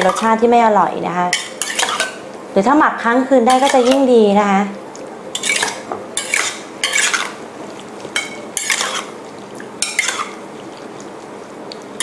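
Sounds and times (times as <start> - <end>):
metal tongs scraping in a bowl: 0.0 - 0.4, 1.3 - 2.2, 3.5 - 4.1, 5.3 - 7.4, 8.2 - 9.1, 9.8 - 10.4.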